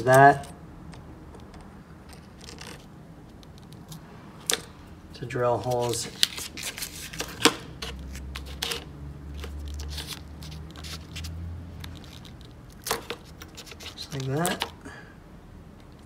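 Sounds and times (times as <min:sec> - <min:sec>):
tape crinkling and rustling: 0:01.4 - 0:04.7, 0:05.5 - 0:14.8.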